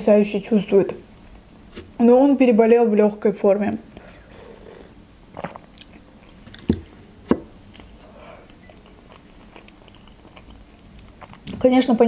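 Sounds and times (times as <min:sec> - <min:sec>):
soft chewing and mouth noises: 0:03.9 - 0:07.0, 0:07.6 - 0:11.8.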